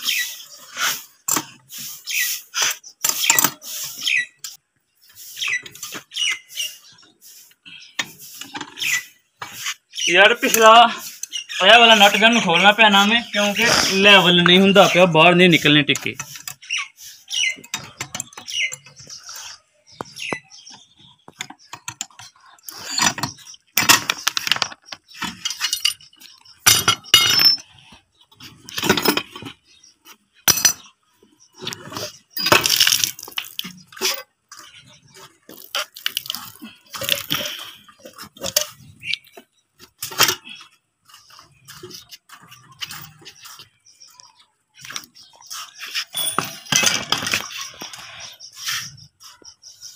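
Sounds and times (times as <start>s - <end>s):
wrench clinking on metal fittings: 21.4s - 27.7s, 46.1s - 47.6s.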